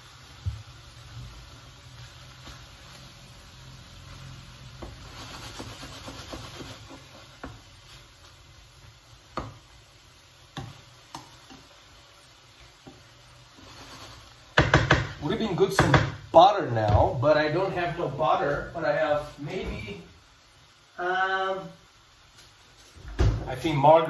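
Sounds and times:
low sizzle: 0.0s - 24.0s
spatula scraping frying pan: 4.1s - 8.4s, 12.6s - 15.9s
spatula knocking against pan: 14.6s - 16.2s.

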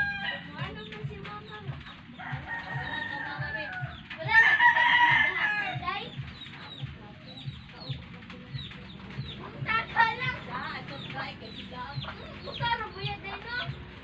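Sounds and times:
rooster crowing: 0.0s - 0.6s, 2.2s - 5.8s.

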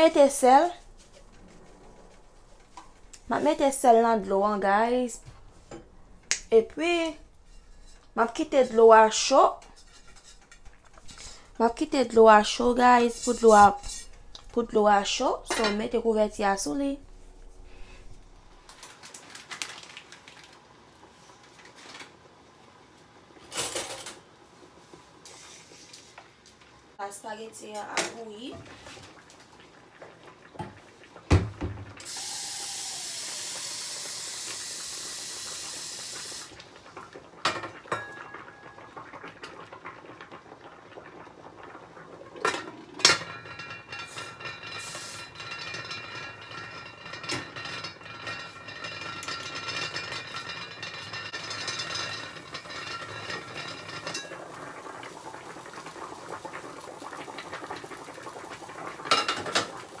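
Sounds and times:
metal pot lid clanking: 15.5s - 15.9s, 42.4s - 54.4s
water bubbling in pot: 28.6s - 60.0s
steady hiss: 32.0s - 36.6s.

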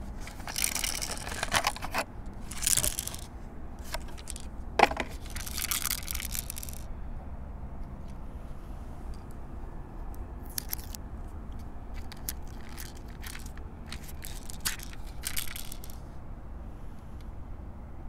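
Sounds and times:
toy pistol plastic clicks: 10.4s - 11.0s.

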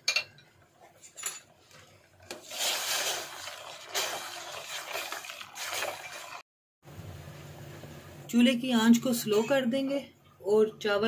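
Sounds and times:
water sloshing and splashing into pot: 1.5s - 6.4s.

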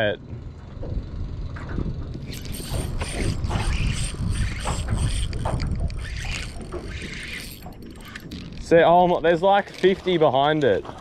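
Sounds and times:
fishing reel whirring and clicking: 2.2s - 8.8s.

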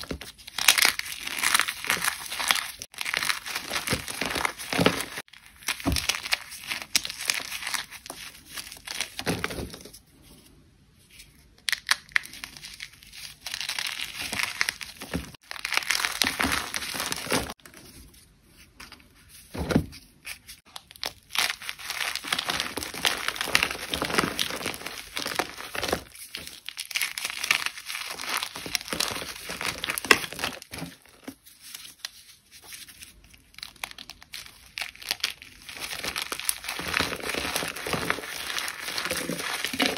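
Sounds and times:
dry material crunching: 0.0s - 9.4s, 12.4s - 17.6s, 20.7s - 31.4s, 33.6s - 39.9s.

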